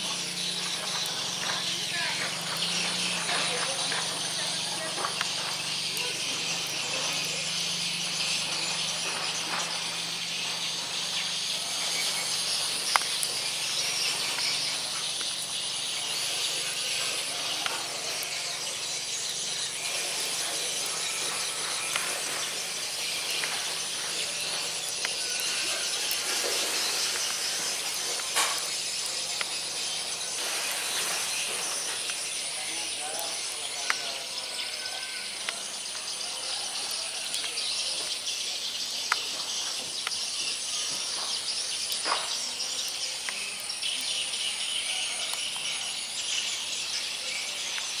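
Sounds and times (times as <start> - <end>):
insects chorus: 0.0 - 48.0
sharp clicks: 12.8 - 13.4.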